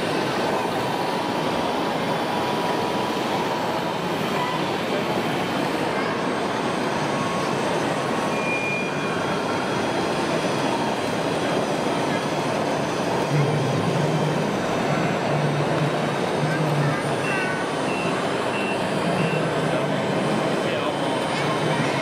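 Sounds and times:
exhibition hall din: 0.0s - 22.0s.

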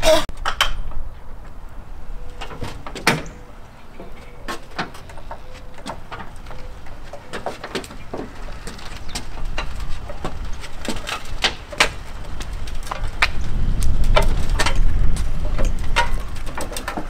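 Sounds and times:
wheelchair clicking on metal ramp: 2.1s - 17.0s.

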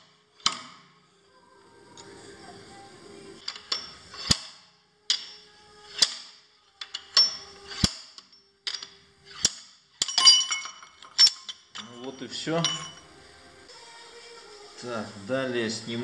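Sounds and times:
metallic clattering and ringing: 3.4s - 4.5s, 5.1s - 13.1s
slide hammer metal clack: 3.4s - 13.1s.

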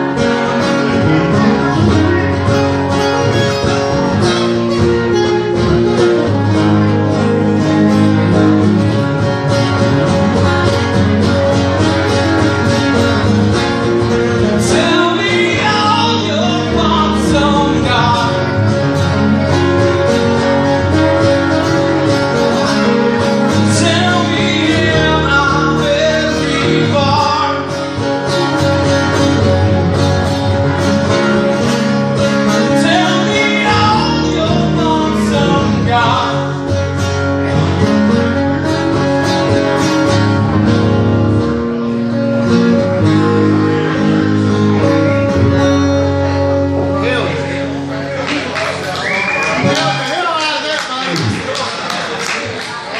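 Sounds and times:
acoustic guitars strumming: 0.0s - 52.9s
man singing into a microphone: 14.3s - 18.8s, 22.8s - 28.3s, 32.4s - 37.5s.

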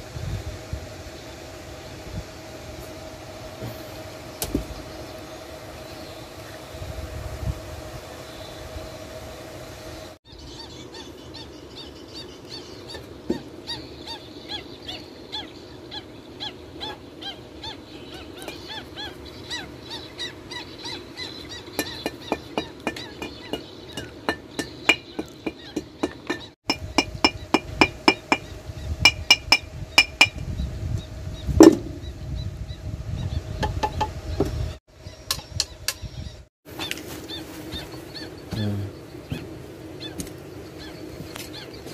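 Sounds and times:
small animal calls: 10.3s - 26.5s, 35.0s - 41.9s.

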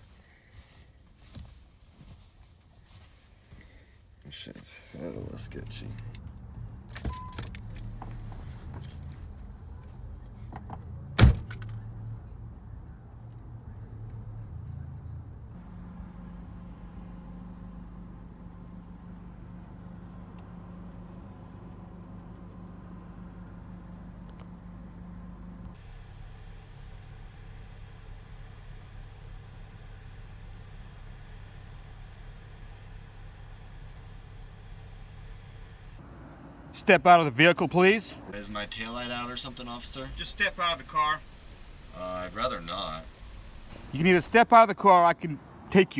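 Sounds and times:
car engine idling: 3.6s - 45.9s
clicks and knocks of controls: 5.6s - 9.3s
car door slamming: 10.6s - 11.8s.

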